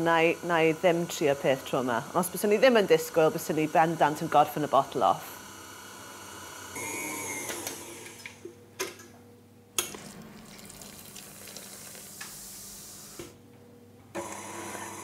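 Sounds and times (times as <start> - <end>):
stand mixer running: 0.0 - 8.4, 14.2 - 15.0.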